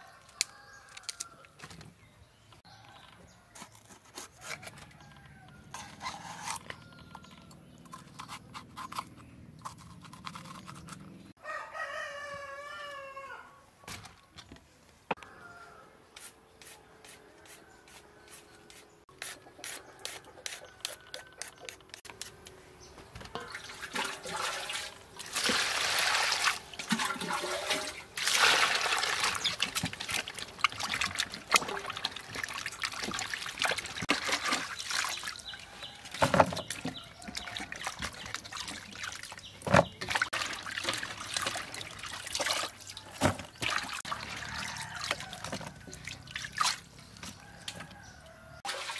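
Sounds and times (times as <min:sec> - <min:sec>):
peeler scraping carrot: 0:03.6 - 0:04.9, 0:05.7 - 0:06.8, 0:07.8 - 0:11.3
rooster crowing: 0:11.4 - 0:13.6, 0:15.2 - 0:16.0, 0:44.2 - 0:46.0
vegetables splashing in water: 0:23.6 - 0:35.4, 0:37.4 - 0:46.9.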